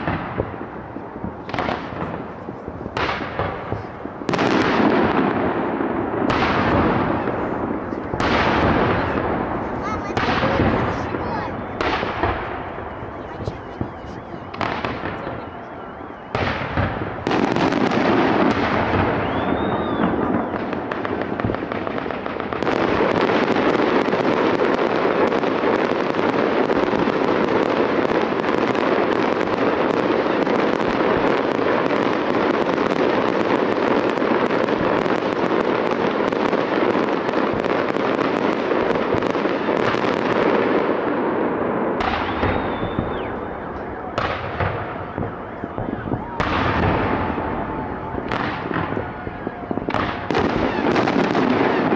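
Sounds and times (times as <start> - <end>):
fireworks crackling and popping: 0.0 - 51.9
firework whistle: 10.0 - 21.7, 42.0 - 51.9.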